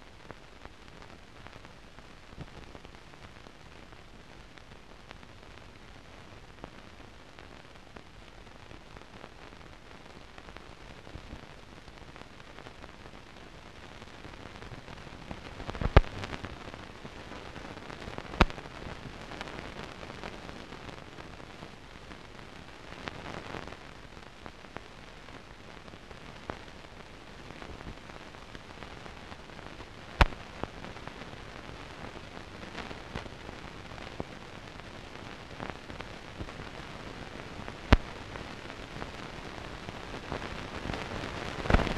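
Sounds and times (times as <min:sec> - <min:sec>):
film soundtrack hiss and crackle: 0:00.0 - 0:41.9
sharp pops: 0:15.6 - 0:16.4, 0:18.3 - 0:18.6, 0:30.2 - 0:30.7, 0:37.8 - 0:38.2, 0:41.6 - 0:41.9.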